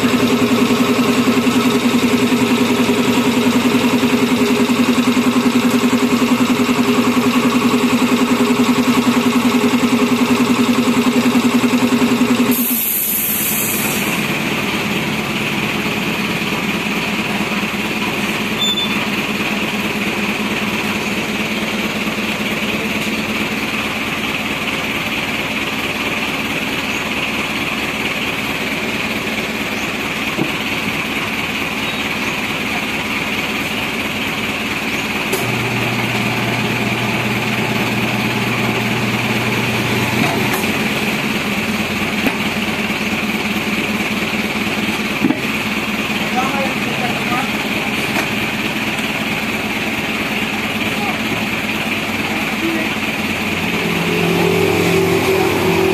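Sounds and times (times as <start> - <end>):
air compressor running: 0.0 - 55.9
deeper hum: 52.9 - 55.9.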